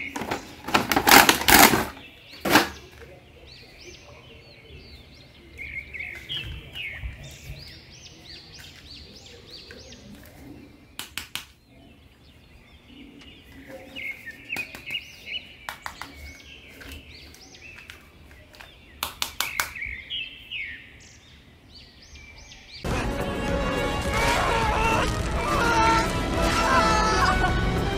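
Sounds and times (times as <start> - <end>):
small birds chirping: 1.9 - 22.9.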